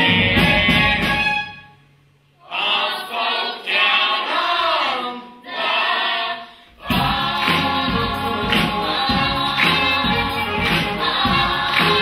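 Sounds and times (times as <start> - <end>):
chorus singing: 2.4 - 12.0
instrumental backing with beat: 6.8 - 12.0.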